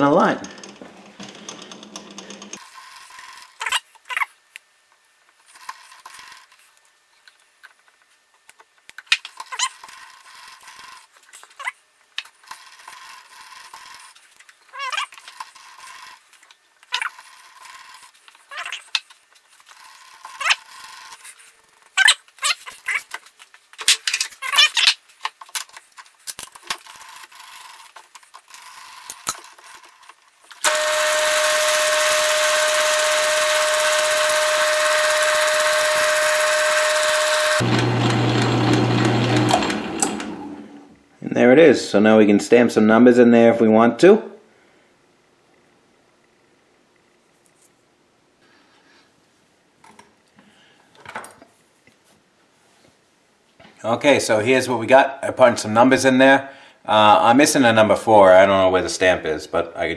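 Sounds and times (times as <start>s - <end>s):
lathe tool scraping and clicking: 0.4s - 2.6s
lathe motor whine: 30.6s - 40.9s.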